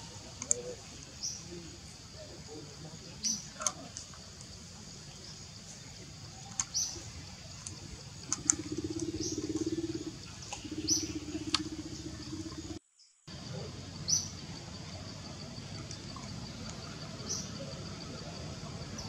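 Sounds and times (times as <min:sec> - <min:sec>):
sharp clicks: 0:06.5 - 0:06.9, 0:07.6 - 0:09.2, 0:11.5 - 0:11.7.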